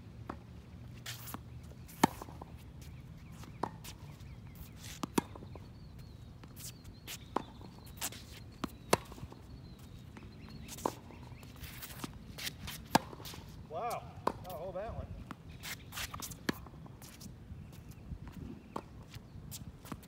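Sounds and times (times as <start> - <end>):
footsteps on court: 0.3 - 20.0
tennis balls struck by racquets: 1.1 - 17.1.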